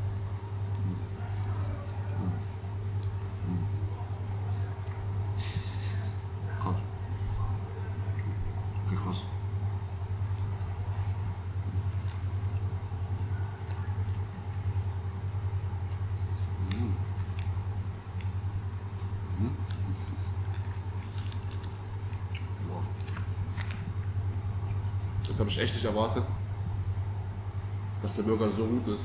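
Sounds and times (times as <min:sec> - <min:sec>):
steady low hum: 0:00.0 - 0:29.0
person humming mmh: 0:03.4 - 0:03.7, 0:19.4 - 0:19.6
person chewing: 0:15.8 - 0:18.4, 0:19.3 - 0:24.9.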